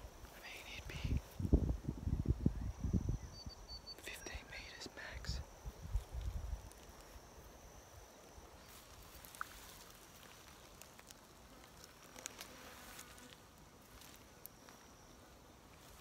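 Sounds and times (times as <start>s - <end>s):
insects buzzing: 0.0s - 16.0s
boots rustling in vegetation: 8.6s - 14.9s.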